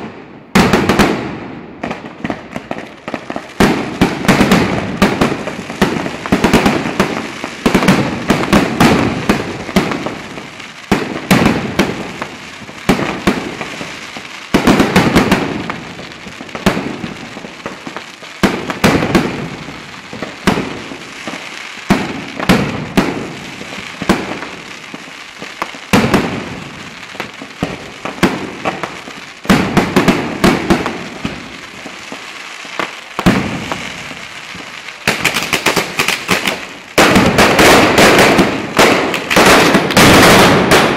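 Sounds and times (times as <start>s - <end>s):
firecracker bangs: 0.0s - 24.7s, 25.6s - 40.9s.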